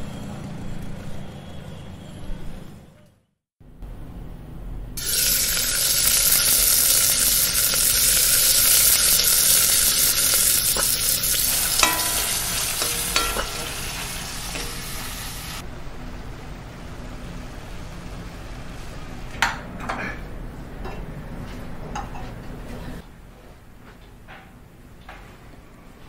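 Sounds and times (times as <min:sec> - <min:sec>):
food sizzling in hot oil: 0:05.0 - 0:15.6.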